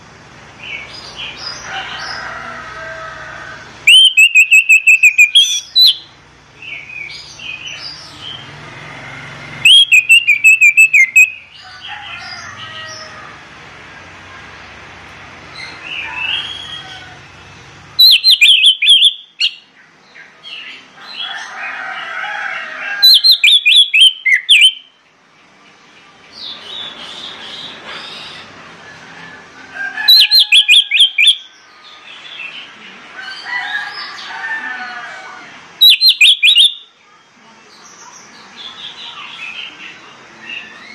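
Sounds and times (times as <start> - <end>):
thrush singing: 0.6 - 14.8
high whistled bird notes: 3.9 - 6.1, 9.6 - 11.5, 18.0 - 19.6, 23.0 - 24.9, 30.1 - 31.4, 35.8 - 36.8.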